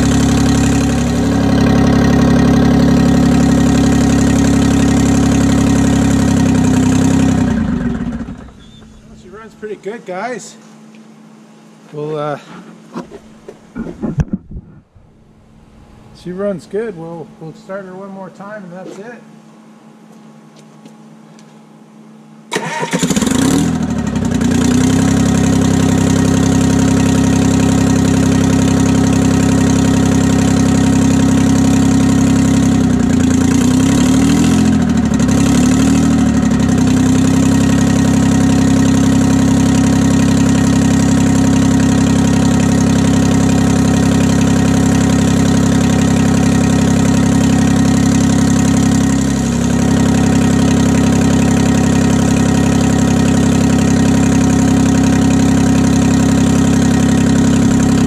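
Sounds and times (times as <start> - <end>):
diesel engine starting and idling: 0.0 - 9.8, 22.5 - 58.0.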